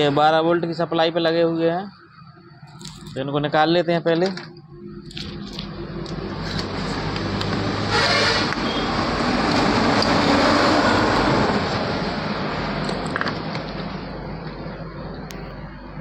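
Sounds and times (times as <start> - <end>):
vehicle passing: 4.8 - 15.1.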